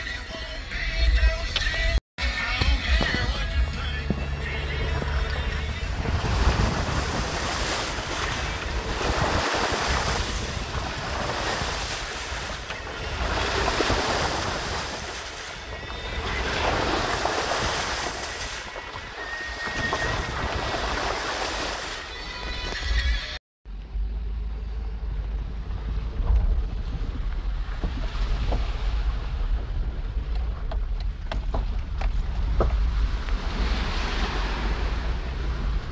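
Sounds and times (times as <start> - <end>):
engine and tyre rumble: 0.6 - 21.7, 23.6 - 35.9
mud splashing from tyres: 2.9 - 22.1.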